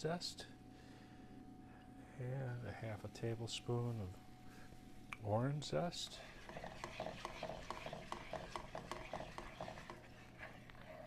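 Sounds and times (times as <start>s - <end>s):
spatula stirring syrup in skillet: 6.1s - 11.0s.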